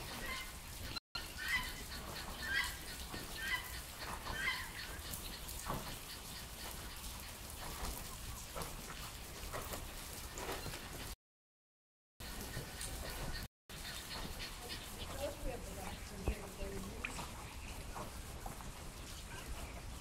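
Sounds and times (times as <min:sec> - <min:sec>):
bird calling: 0:01.2 - 0:07.4, 0:12.2 - 0:18.3
rain hissing: 0:12.2 - 0:20.0.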